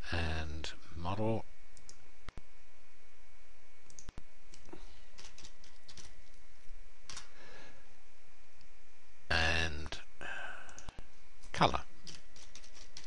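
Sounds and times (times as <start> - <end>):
background hiss: 0.0 - 13.0
keyboard typing: 3.9 - 6.4, 12.0 - 13.0.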